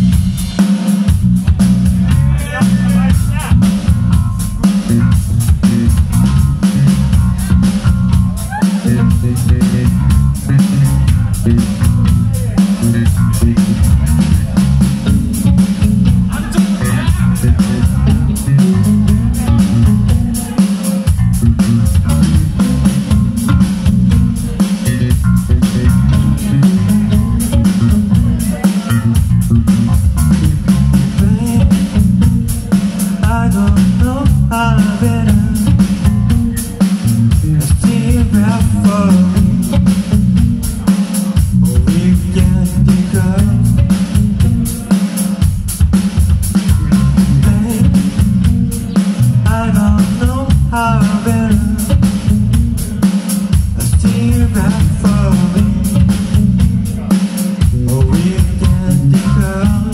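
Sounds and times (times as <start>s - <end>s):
live rock band playing: 0.0s - 59.9s
lead vocal singing: 16.1s - 23.0s, 30.7s - 40.0s, 40.7s - 45.4s, 46.7s - 59.9s.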